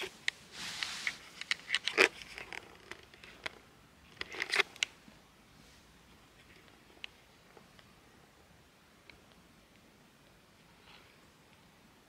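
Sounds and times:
fleece rustling: 0.0 - 2.9.

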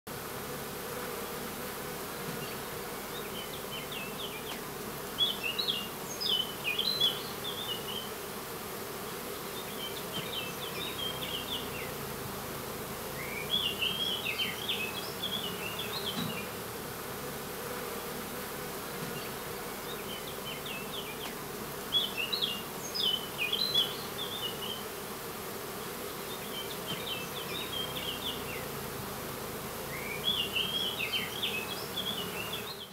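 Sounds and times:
honeybees humming: 0.1 - 32.9
songbird chirping: 5.2 - 8.2, 9.1 - 12.0, 13.1 - 16.6, 18.3 - 24.9, 25.8 - 28.9, 29.8 - 32.9.

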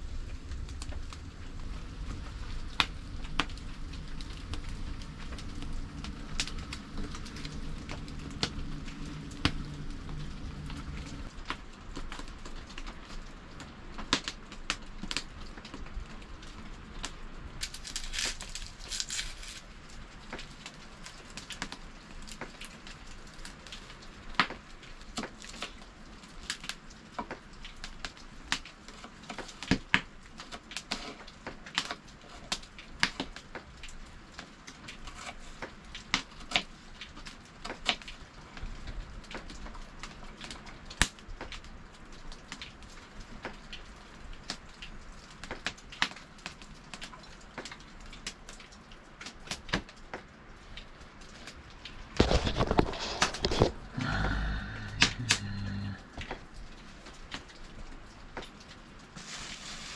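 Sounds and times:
low steady hiss: 0.0 - 29.2
wood fire crackling: 0.0 - 59.9.

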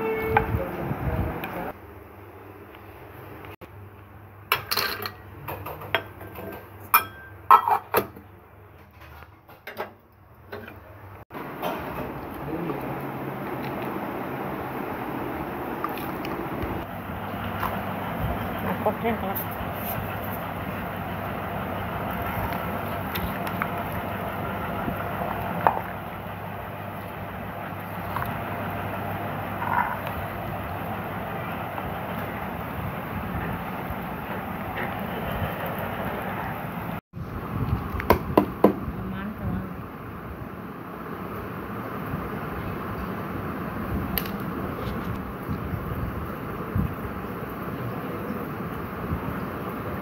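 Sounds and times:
steady background noise: 0.0 - 50.0
glass and metal clinks: 6.2 - 7.8.

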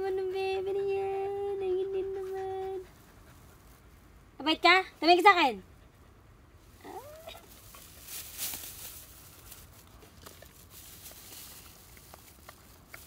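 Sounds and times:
plastic bag rustling and crinkling: 6.8 - 13.0.

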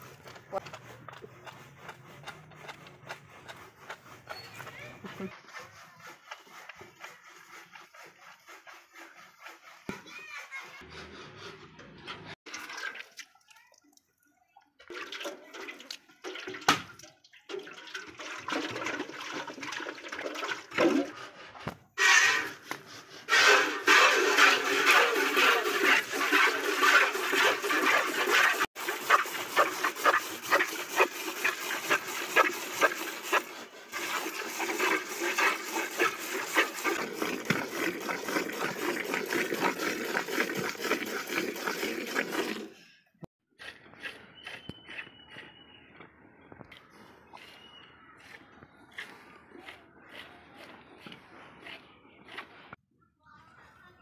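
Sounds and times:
milk squirting into steel bucket: 12.5 - 14.1, 14.8 - 42.8.

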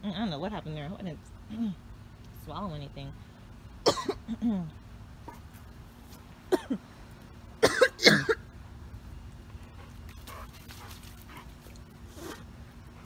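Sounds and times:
person coughing: 3.9 - 4.5, 6.5 - 6.8, 7.6 - 8.4.

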